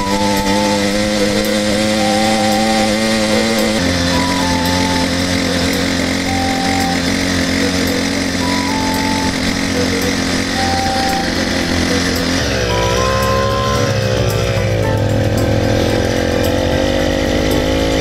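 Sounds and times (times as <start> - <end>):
small two-stroke engine running: 0.0 - 18.0.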